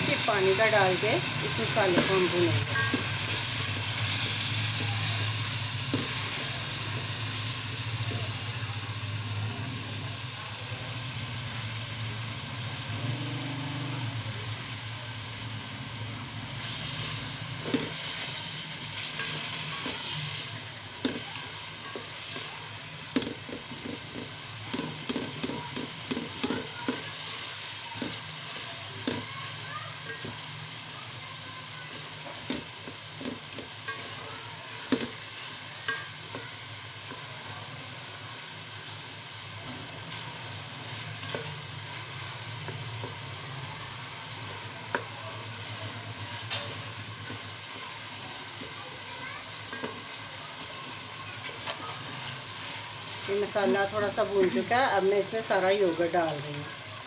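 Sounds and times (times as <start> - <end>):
masala sizzling in oil: 0.0 - 57.0
wooden spoon scraping and tapping pot: 23.1 - 27.0, 32.4 - 34.2.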